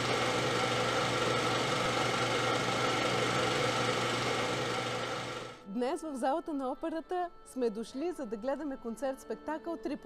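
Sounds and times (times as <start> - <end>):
film projector whirring: 0.0 - 5.6.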